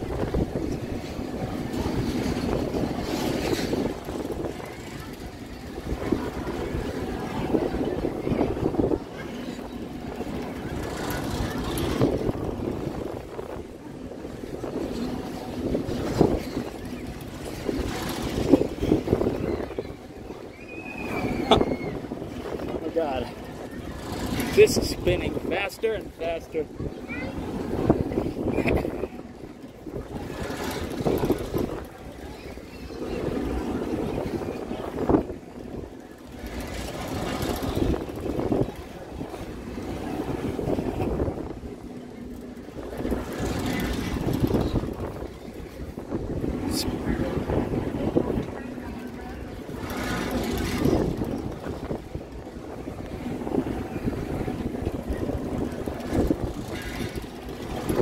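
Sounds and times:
fairground ride noise: 0:00.0 - 0:58.0
wind buffeting microphone: 0:00.0 - 0:58.0.

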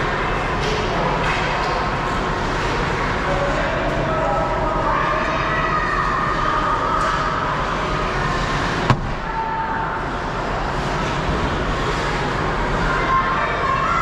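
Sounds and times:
ice rink arena noise: 0:00.0 - 0:14.0
sharp crack: 0:08.9 - 0:09.6.

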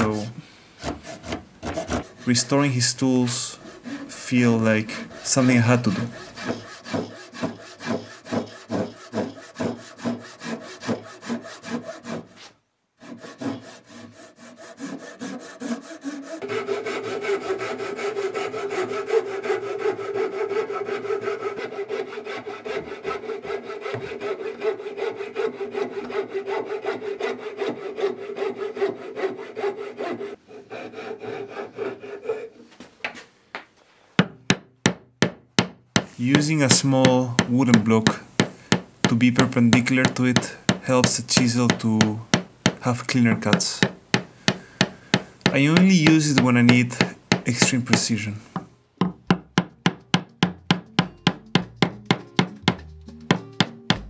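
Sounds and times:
handsaw cutting wood: 0:00.0 - 0:32.6, 0:36.0 - 0:38.2, 0:39.0 - 0:48.3
marking gauge rubbing wood: 0:00.0 - 0:32.6, 0:36.0 - 0:48.7
chisel knocks: 0:23.8 - 0:24.6, 0:33.0 - 0:54.0.

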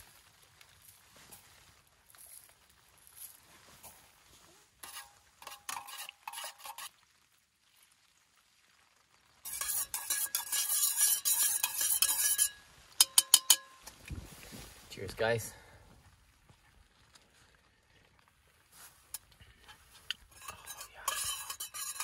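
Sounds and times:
milk hissing in hot pot: 0:03.8 - 0:12.6
spoon clinking against pot: 0:04.8 - 0:06.8, 0:09.5 - 0:13.9, 0:20.1 - 0:22.0
light taps on metal pot: 0:09.5 - 0:14.1.

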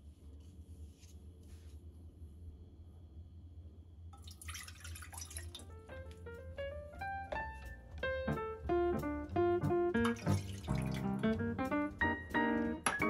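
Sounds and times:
water pouring into a pot: 0:04.2 - 0:05.7, 0:10.1 - 0:11.0
light piano music: 0:05.2 - 0:13.0.

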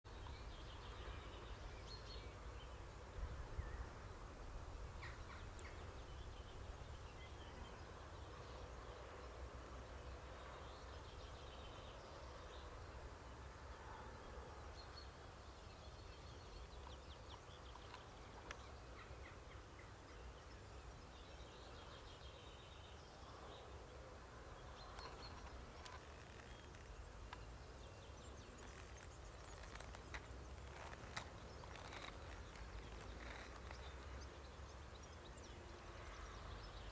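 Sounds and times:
birds chirping: 0:15.9 - 0:36.9.

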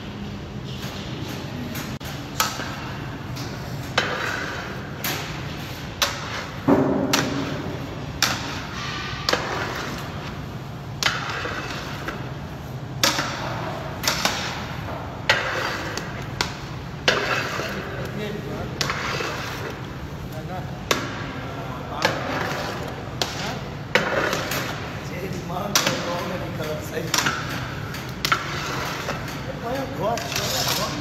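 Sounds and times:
spatula scraping steel pan: 0:15.3 - 0:16.1, 0:17.0 - 0:18.0, 0:18.8 - 0:19.8, 0:28.2 - 0:29.4, 0:30.0 - 0:31.0.

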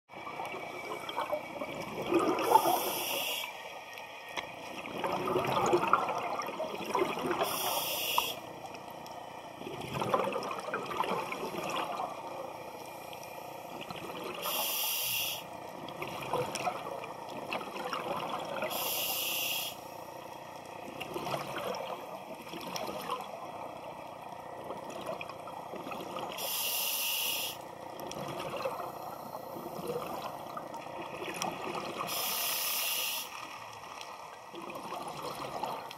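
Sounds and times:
exhaled bubbles burbling: 0:00.1 - 0:03.1, 0:04.7 - 0:07.7, 0:09.6 - 0:12.5, 0:13.7 - 0:14.4, 0:15.9 - 0:18.7, 0:20.8 - 0:23.5, 0:28.0 - 0:32.1, 0:34.5 - 0:35.9
regulator inhalation hiss: 0:02.5 - 0:03.6, 0:07.4 - 0:08.4, 0:14.4 - 0:15.5, 0:18.7 - 0:20.0, 0:26.4 - 0:27.6, 0:32.1 - 0:33.4.

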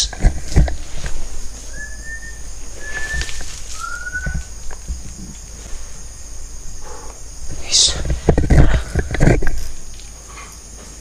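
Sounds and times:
person whistling short notes: 0:01.7 - 0:04.4.

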